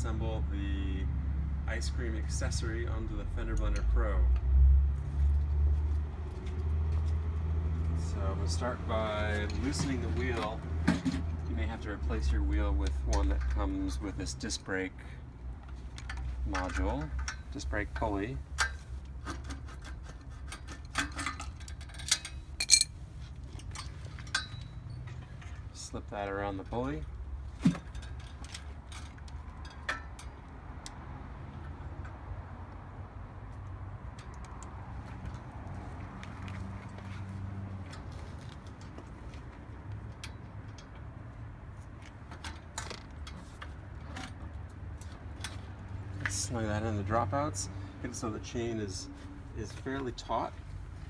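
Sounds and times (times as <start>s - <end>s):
metal clinks: 20.9s - 25.7s.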